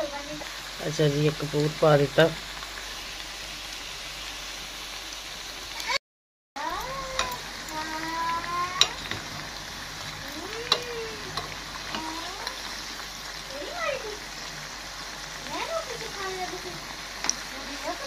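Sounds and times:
oil sizzling in deep frying: 0.0 - 6.0, 6.6 - 18.0
metal tongs clicking on pan: 7.1 - 7.4, 8.8 - 9.3, 10.5 - 12.6.

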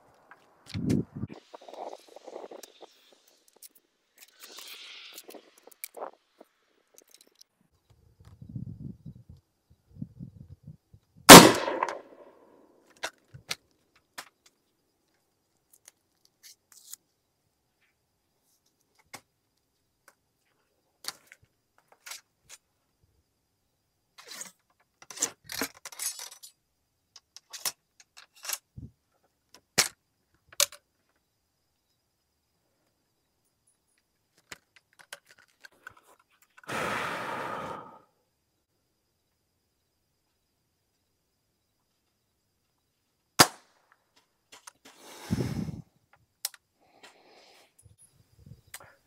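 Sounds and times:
metallic clicks of rifle handling: 6.9 - 7.5, 11.3 - 12.2, 27.2 - 28.7, 29.5 - 30.8, 34.4 - 36.7, 46.4 - 46.6
rifle shot with echo: 11.3 - 12.3.

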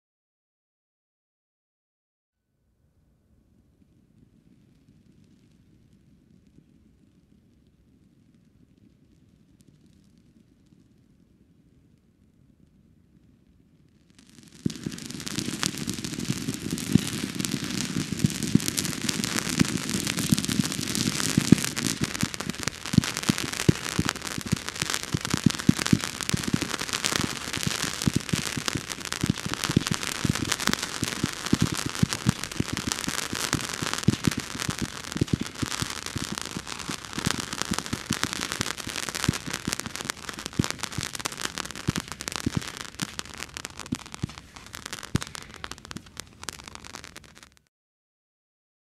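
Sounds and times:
ground firework hissing and crackling: 14.0 - 47.6.

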